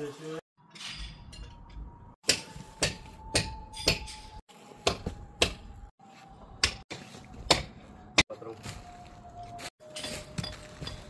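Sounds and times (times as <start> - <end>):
sharp hammer strikes: 2.2 - 4.2, 4.8 - 5.7, 6.6 - 7.8.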